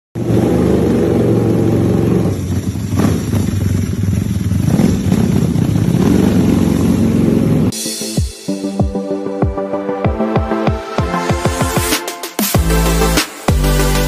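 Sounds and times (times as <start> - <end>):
motorcycle engine running: 0.2 - 7.7.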